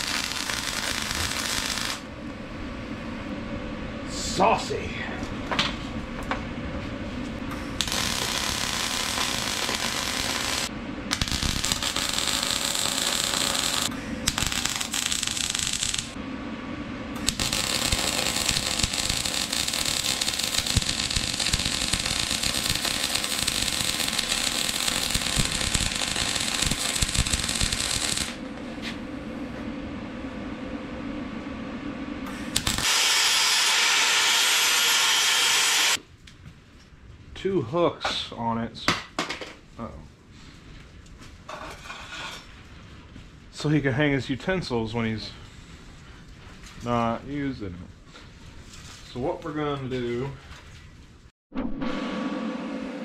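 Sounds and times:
loud steady hiss: 0.0 - 2.1, 7.6 - 16.2, 17.2 - 28.5, 32.2 - 36.0
welding arc crackling: 0.0 - 2.1, 7.6 - 16.2, 17.2 - 28.5, 32.3 - 36.0.

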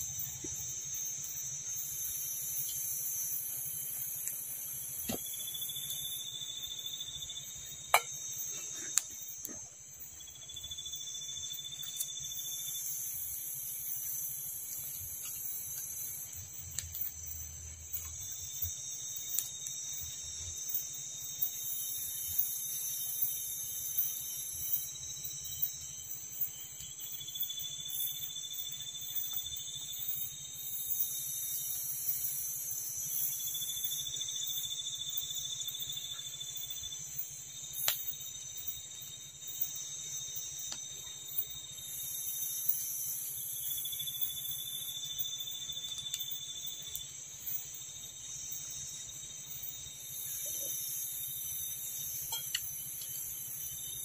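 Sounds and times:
insect chorus pulsing: 0.0 - 54.0
insects droning: 0.0 - 54.0
campfire crackling and popping: 1.7 - 6.4, 7.0 - 10.2, 11.5 - 20.9, 37.0 - 39.4, 40.4 - 43.6, 45.0 - 48.0, 50.4 - 54.0.

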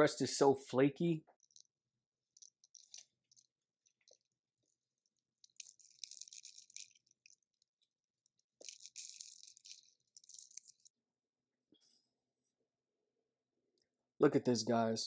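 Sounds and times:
pie crust crackling: 1.3 - 11.1.

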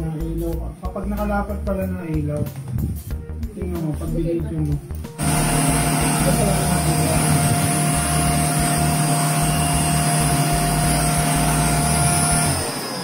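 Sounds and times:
handheld vacuum motor whining: 5.2 - 13.0.

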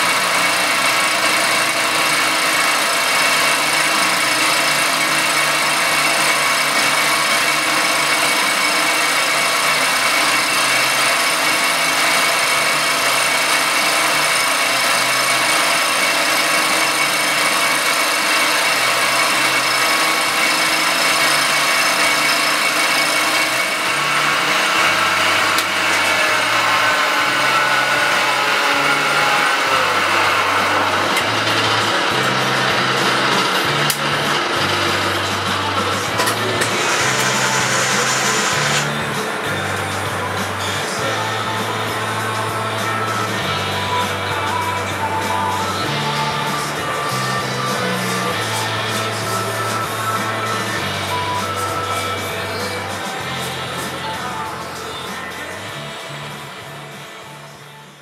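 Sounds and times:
milling cutter hiss: 21.6 - 43.3.

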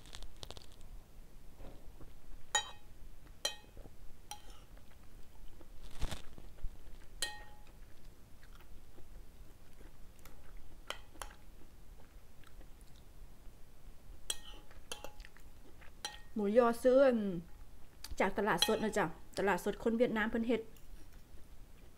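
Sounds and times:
utensils clinking on ceramic bowl: 2.5 - 2.8, 7.2 - 7.7, 18.6 - 18.9
person chewing: 4.3 - 13.2, 14.3 - 16.3.

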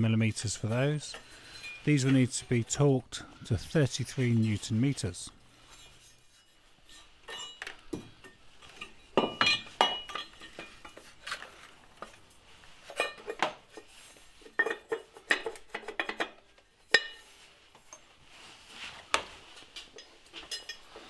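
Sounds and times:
metallic clinks and knocks: 19.6 - 21.0.

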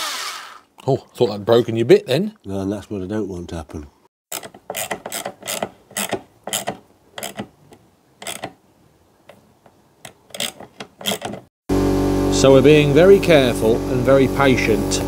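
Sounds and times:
metal tap clicking and scraping: 4.3 - 8.6, 9.2 - 11.5.

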